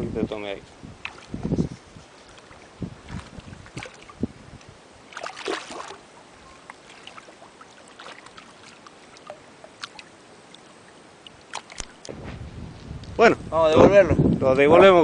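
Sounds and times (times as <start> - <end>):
fish thrashing and splashing: 2.2 - 4.3, 5.1 - 12.0
water drips: 2.3 - 12.1.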